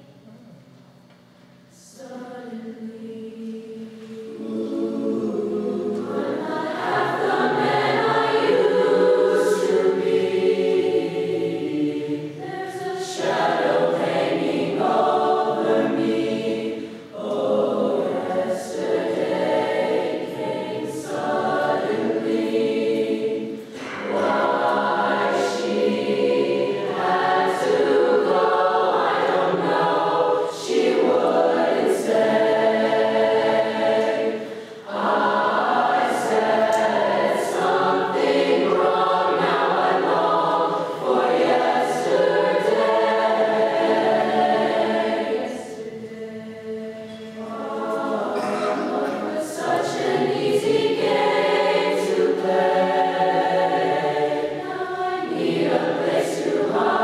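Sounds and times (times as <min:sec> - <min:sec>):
a cappella voices singing: 0:01.7 - 0:57.0.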